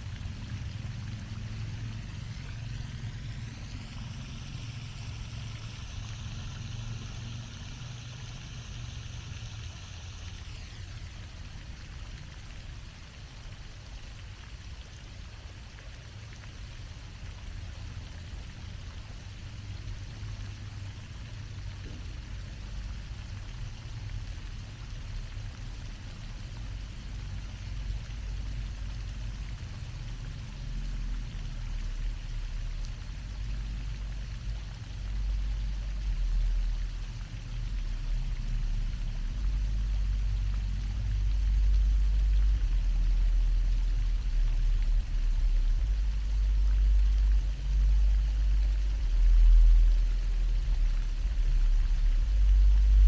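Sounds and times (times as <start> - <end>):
fountain water splashing: 0.0 - 53.0
low rumble: 26.6 - 53.0.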